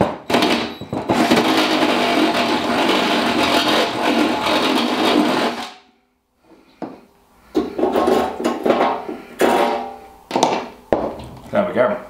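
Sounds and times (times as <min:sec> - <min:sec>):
cordless drill grinding steel: 0:00.7 - 0:05.7.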